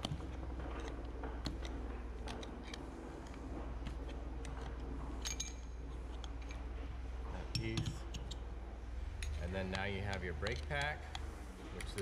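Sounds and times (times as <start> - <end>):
metal parts clicking and clinking: 0.0 - 6.7, 7.4 - 8.5, 9.2 - 11.2
low steady hum: 0.0 - 12.0
metallic ring: 5.2 - 5.8.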